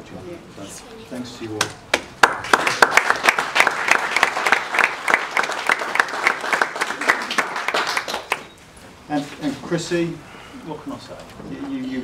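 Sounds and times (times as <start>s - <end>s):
crowd applauding: 1.9s - 8.6s.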